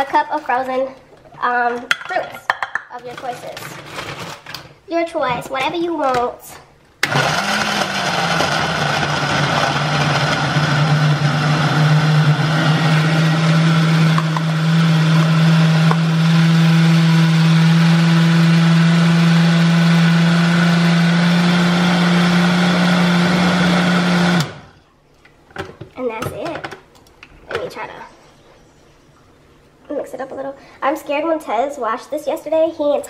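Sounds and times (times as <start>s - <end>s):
blender running: 7.0s - 24.8s.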